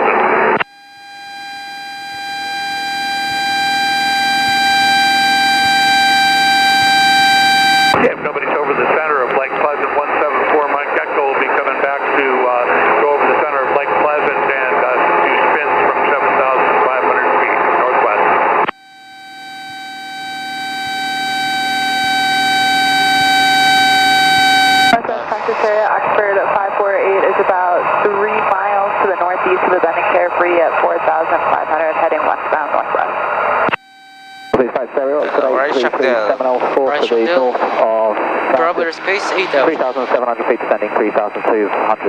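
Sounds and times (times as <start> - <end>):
stall warning horn tone: 0.6 - 8.0, 18.7 - 25.0, 33.7 - 34.6
airplane engine drone: 34.6 - 42.0.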